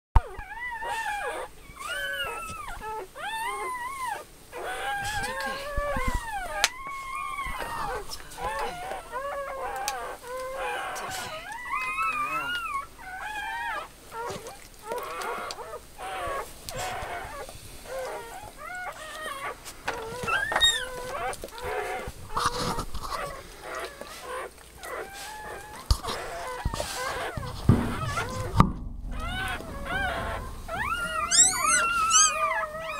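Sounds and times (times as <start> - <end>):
dog whining and whimpering: 0.2 - 32.9.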